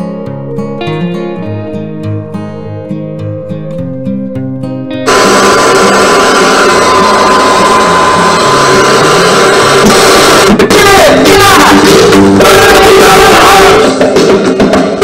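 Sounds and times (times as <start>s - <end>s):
radio tuning between stations: 5.0s - 15.0s
radio music with singing: 5.1s - 15.0s.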